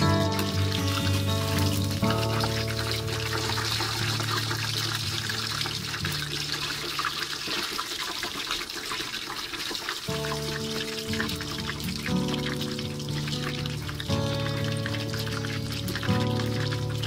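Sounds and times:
background music: 0.0 - 6.7, 10.1 - 17.0
hot oil sizzling: 0.0 - 17.0.

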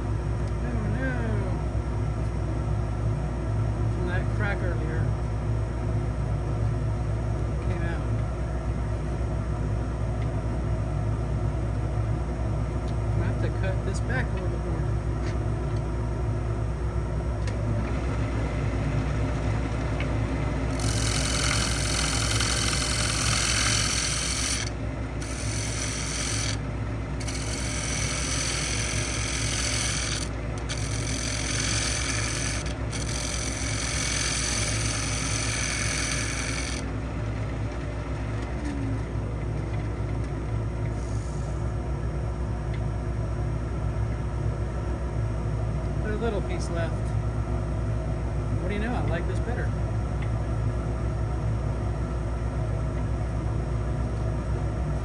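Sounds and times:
wood lathe humming: 17.7 - 40.4
hiss of wood being shaved: 20.8 - 26.6.

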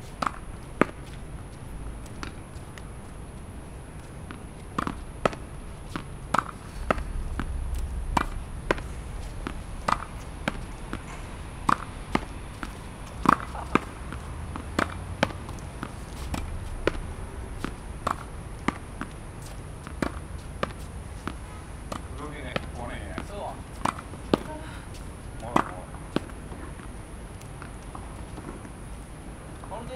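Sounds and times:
tennis ball hitting wall: 4.3 - 7.5, 9.4 - 19.2, 19.8 - 24.5
low rumble: 5.0 - 21.8.

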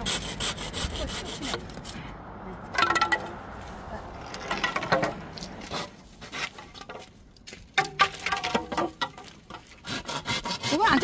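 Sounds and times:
hand saw cutting bamboo: 0.0 - 2.0, 5.6 - 6.7, 9.6 - 11.0
bamboo poles knocking: 2.7 - 3.4, 4.4 - 5.3, 6.6 - 9.8.

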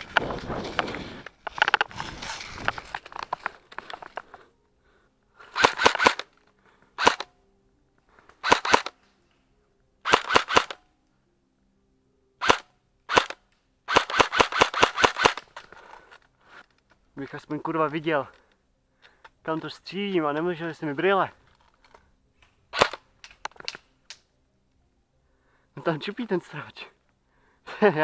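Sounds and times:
brush rustling: 0.0 - 4.6
airsoft rifle firing: 5.5 - 6.3, 7.0 - 7.3, 8.4 - 9.0, 10.0 - 10.8, 12.4 - 15.6, 22.7 - 23.8.

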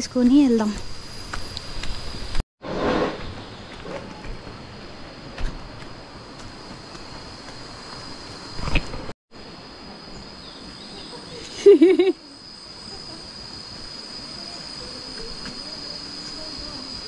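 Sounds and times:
high-pitched insect drone: 9.4 - 17.0.

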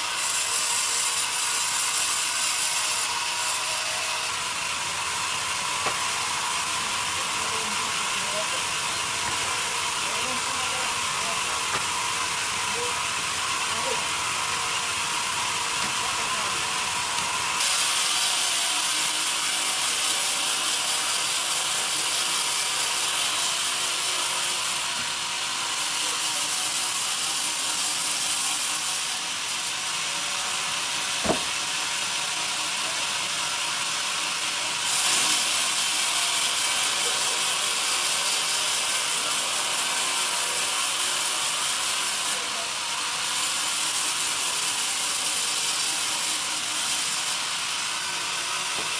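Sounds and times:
bandsaw ripping through log: 31.2 - 31.7.

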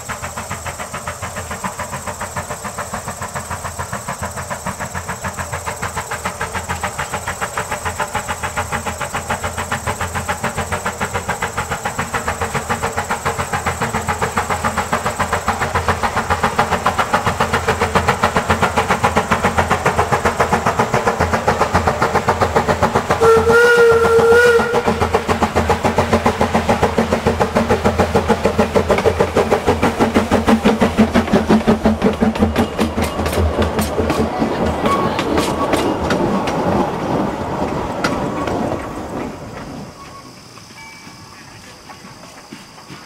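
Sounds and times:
steam locomotive chuffing: 0.0 - 43.0
steam whistle blast: 23.2 - 25.0.

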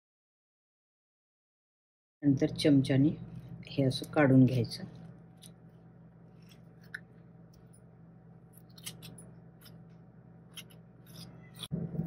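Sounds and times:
low steady hum: 2.2 - 12.0
metal spoon scraping avocado: 8.6 - 9.9, 10.5 - 11.9.

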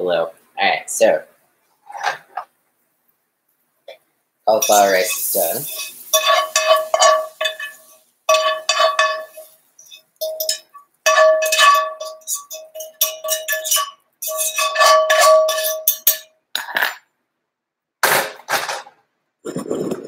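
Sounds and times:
utensil scraping ringing frying pan: 4.5 - 16.3
dull clatter: 4.6 - 16.3.

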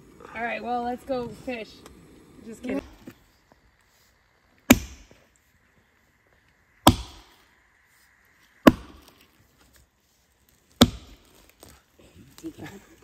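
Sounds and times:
axe chopping wood: 4.7 - 5.2, 6.8 - 7.3, 8.6 - 9.1, 10.8 - 11.3.

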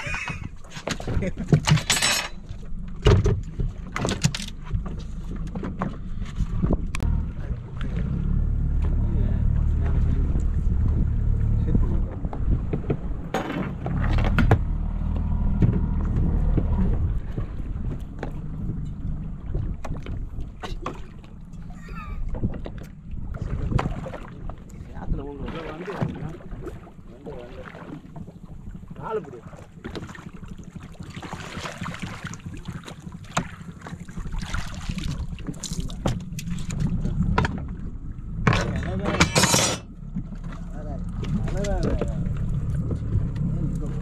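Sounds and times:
low boat rumble: 0.0 - 44.0
water splashing against hull: 0.0 - 44.0
sharp knocks on hull: 3.0 - 6.0, 29.8 - 37.7
water splashing off fish: 30.0 - 37.4.

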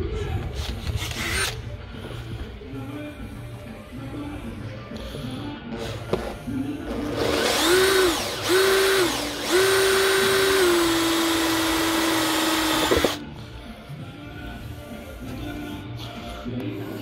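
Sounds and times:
cordless drill boring through plastic: 7.0 - 13.2.

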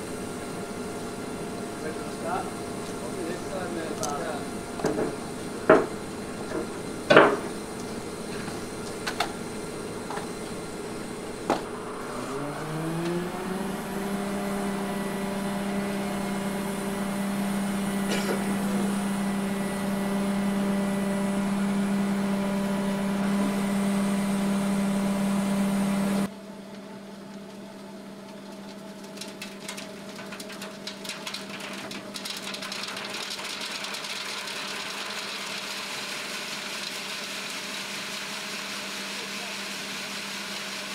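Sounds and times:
diesel truck engine revving: 0.0 - 26.3
metal knocks from chute: 4.8 - 7.6.

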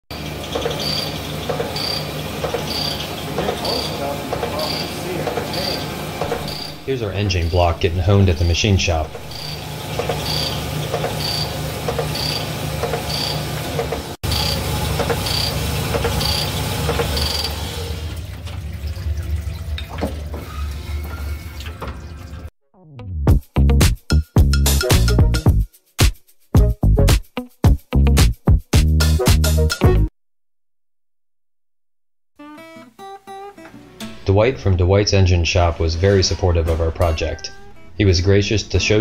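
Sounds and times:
honing machine humming: 0.1 - 18.2, 37.0 - 39.0.

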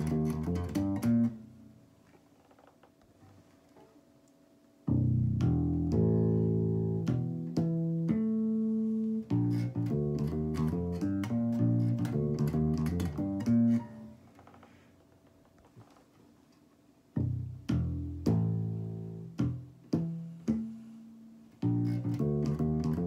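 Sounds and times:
electric bass plucked notes: 0.0 - 1.7, 4.8 - 14.2, 17.2 - 23.0.

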